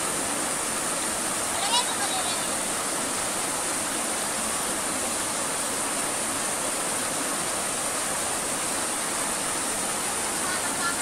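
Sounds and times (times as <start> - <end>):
stream running over stones: 0.0 - 11.0.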